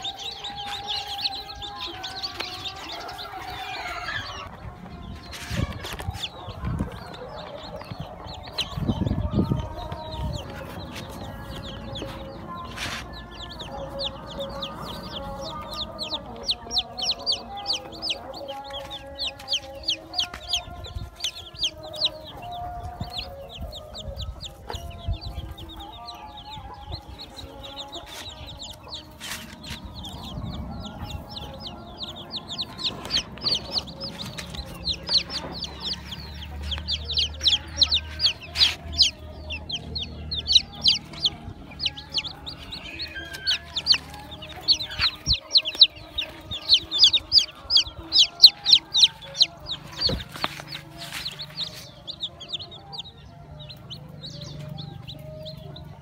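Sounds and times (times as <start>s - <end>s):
adult chickens clucking: 0.0s - 56.0s
chicks peeping: 0.0s - 56.0s.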